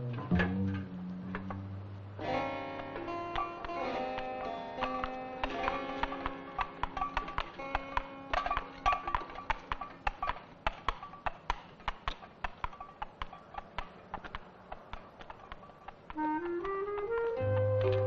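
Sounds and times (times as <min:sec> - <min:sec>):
held musical notes: 0:00.0 - 0:10.3, 0:14.9 - 0:18.0
wood-block knocks ticking: 0:02.6 - 0:18.0.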